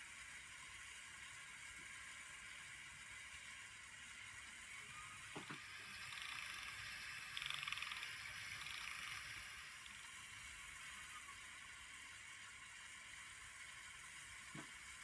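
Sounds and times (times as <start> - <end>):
steady hiss: 0.0 - 15.0
small electric motors whirring: 0.3 - 15.0
fast ratchet-like buzzing: 5.6 - 10.4.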